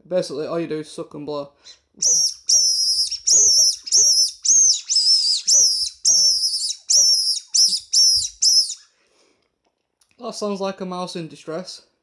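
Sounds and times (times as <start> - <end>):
predator call high-pitched squeaks: 2.0 - 8.8.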